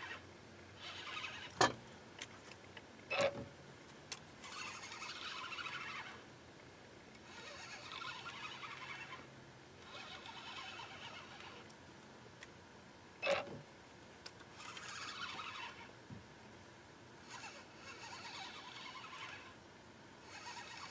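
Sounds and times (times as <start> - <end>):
fishing reel whirring: 0.0 - 0.2, 0.8 - 1.6, 4.4 - 6.3, 7.2 - 11.7, 14.5 - 15.9, 17.2 - 19.6, 20.2 - 20.9.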